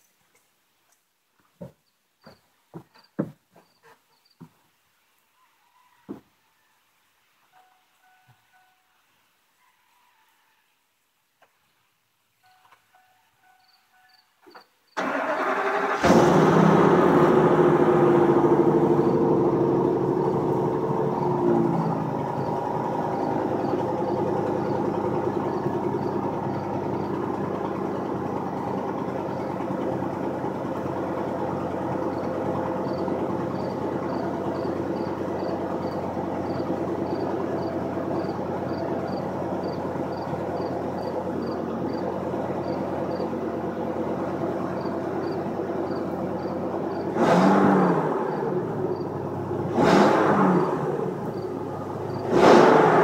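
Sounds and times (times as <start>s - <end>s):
engine revving: 15.0s - 53.0s
truck engine idling: 15.0s - 53.0s.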